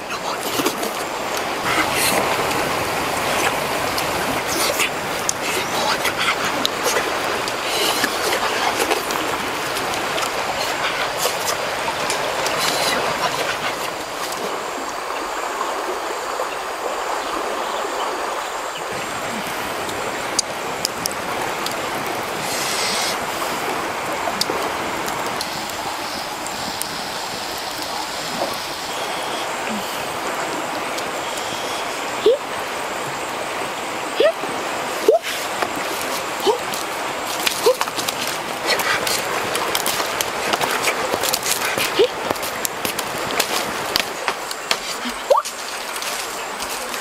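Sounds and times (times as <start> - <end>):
flowing stream: 0.0 - 47.0
bonfire crackling and popping: 6.4 - 14.5, 19.9 - 28.6, 35.4 - 47.0.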